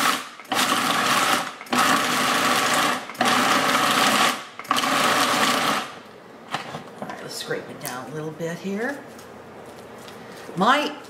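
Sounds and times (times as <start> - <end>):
food processor motor chopping: 0.0 - 6.0.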